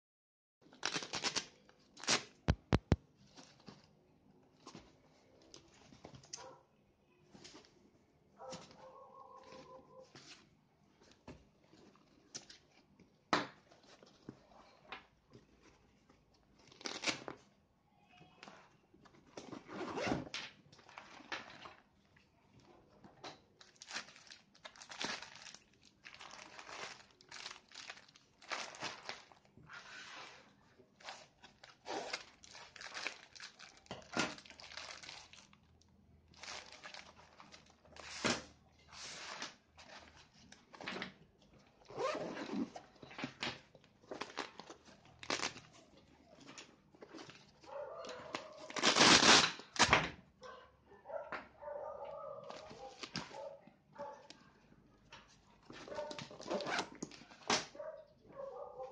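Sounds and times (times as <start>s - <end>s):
plastic wrap crinkling: 0.7s - 3.9s, 23.6s - 29.5s, 31.0s - 38.4s, 44.1s - 49.8s, 52.4s - 57.6s
fabric pouch rustling: 41.9s - 42.8s.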